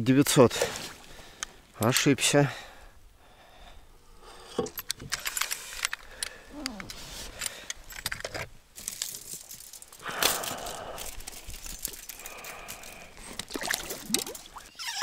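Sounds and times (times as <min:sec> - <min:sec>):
small metal clicks and rattles: 0:04.6 - 0:14.4
rustling: 0:05.1 - 0:14.4.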